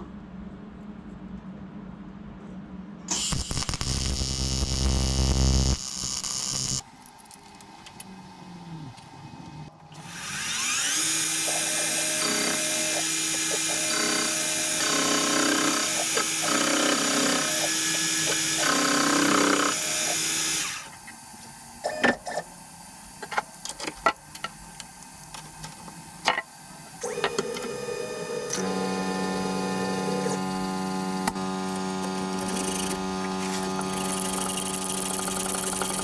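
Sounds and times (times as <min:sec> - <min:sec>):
steady hum: 0:00.0 - 0:19.6, 0:24.4 - 0:36.0
milling machine spindle whine: 0:10.0 - 0:20.9, 0:27.0 - 0:36.0.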